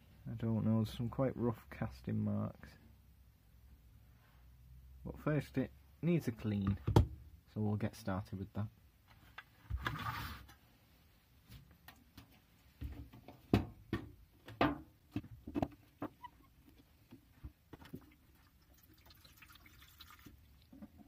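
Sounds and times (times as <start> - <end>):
liquid trickling into tin: 17.9 - 20.8.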